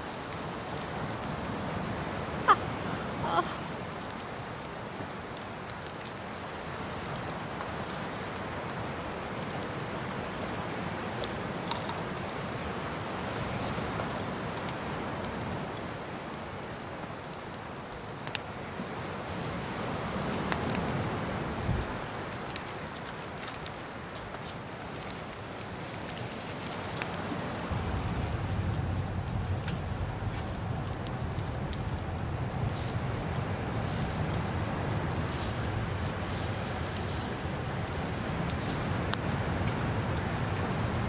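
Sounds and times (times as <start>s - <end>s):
fire crackles and pops: 0.0s - 41.0s
food sizzling on grill: 32.6s - 41.0s.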